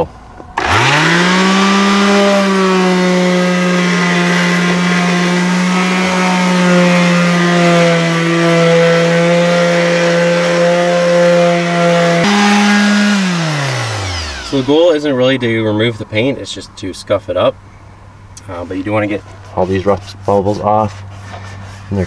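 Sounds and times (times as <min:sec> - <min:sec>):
electric sander on metal: 0:00.6 - 0:15.1.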